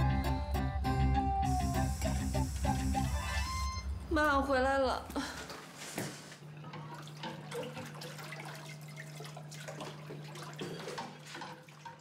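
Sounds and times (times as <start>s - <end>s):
small water splashes: 6.6s - 12.0s
tap water running into sink: 6.6s - 12.0s.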